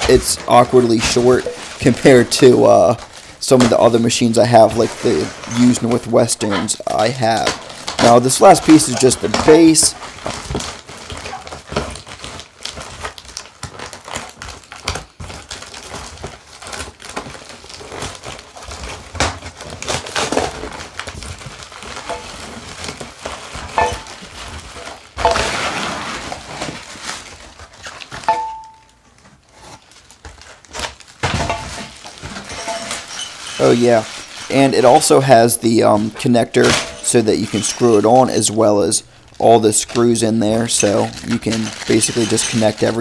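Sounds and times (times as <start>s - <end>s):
cardboard flaps rustling and scraping: 0.0s - 12.8s, 15.3s - 28.3s, 29.1s - 38.8s
plastic wrapping crinkling: 0.0s - 43.0s
knife slitting cardboard box: 25.2s - 27.1s.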